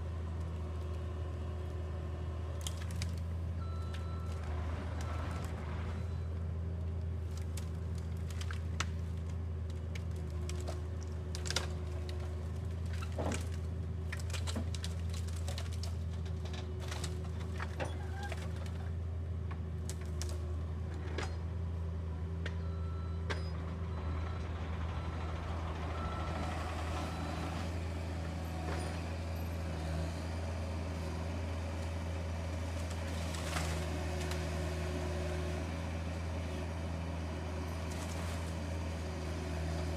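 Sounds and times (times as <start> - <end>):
diesel engine running: 0.0 - 39.9
branches cracking and snapping: 2.5 - 3.3, 7.2 - 18.8, 19.8 - 20.5, 29.9 - 39.9.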